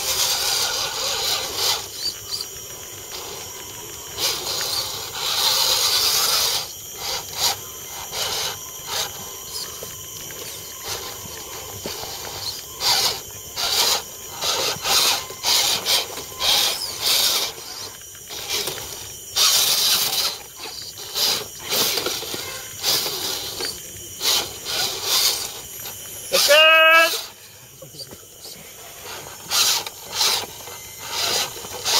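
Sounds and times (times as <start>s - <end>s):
rc car motor whirring: 0.0s - 31.9s.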